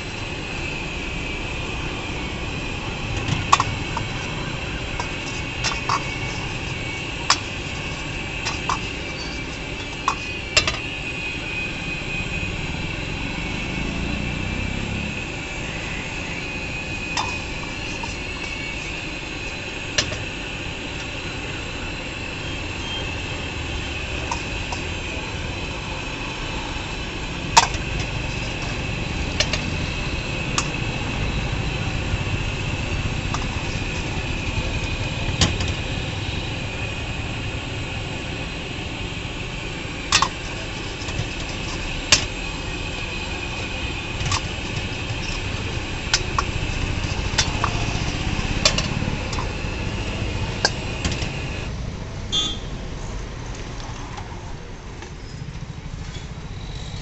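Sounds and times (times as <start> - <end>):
gas burner hissing: 0.0 - 57.0
low rumble of road traffic: 0.0 - 57.0
metal ladle scraping a wok: 3.1 - 11.0, 15.8 - 20.3, 27.3 - 31.2, 40.0 - 51.7
food frying: 40.0 - 51.7.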